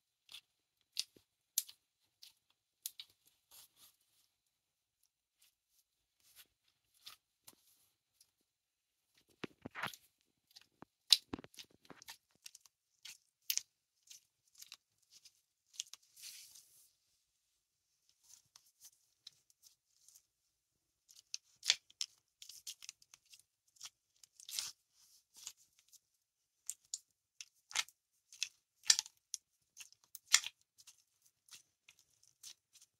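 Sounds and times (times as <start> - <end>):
slime squelching wet clicks: 26.6 - 32.8.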